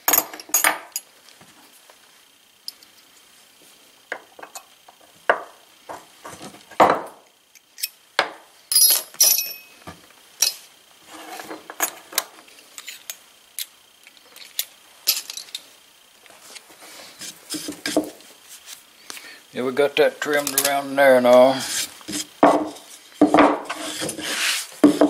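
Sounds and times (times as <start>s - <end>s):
hand tools clinking and scraping: 8.7s - 9.8s, 10.4s - 13.2s, 14.2s - 15.7s, 20.2s - 25.0s.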